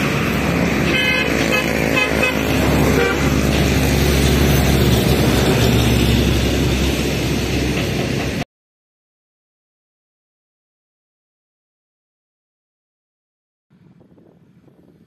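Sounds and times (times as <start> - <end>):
vehicle engine running: 0.0 - 8.4
short high horn toots: 0.9 - 3.4.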